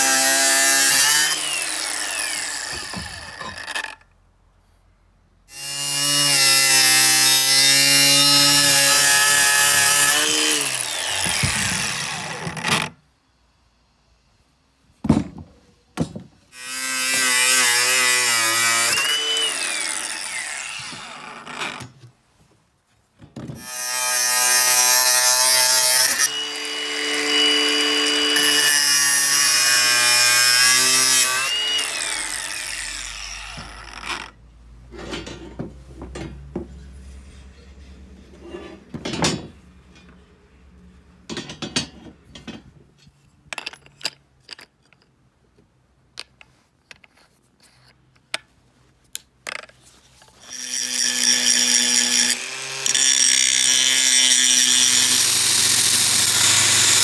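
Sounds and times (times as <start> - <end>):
angle grinder cutting metal: 0.0 - 4.0, 5.5 - 12.9, 16.6 - 21.8, 23.6 - 34.4, 50.4 - 57.0.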